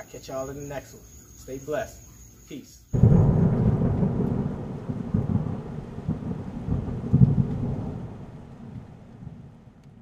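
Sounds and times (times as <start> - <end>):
low rumbling crackling noise: 3.0 - 10.0.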